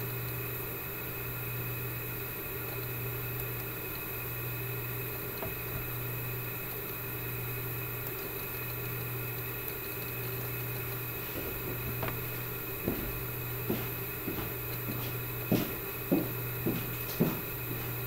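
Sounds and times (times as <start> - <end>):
electrical hum: 0.0 - 18.0
small knocks: 11.2 - 18.0.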